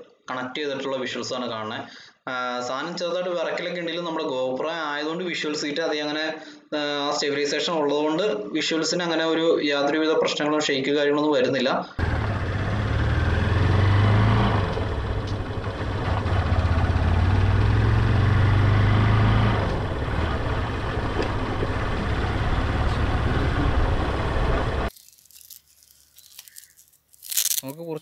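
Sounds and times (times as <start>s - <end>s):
motorcycle engine running: 12.0s - 24.9s
wind and road noise: 12.0s - 25.6s.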